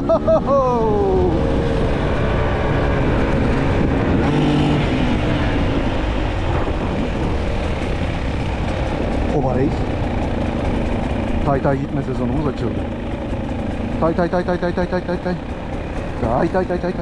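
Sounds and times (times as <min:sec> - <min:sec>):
motorcycle engine running: 0:00.0 - 0:17.0
wind rumble on microphone: 0:01.2 - 0:09.3.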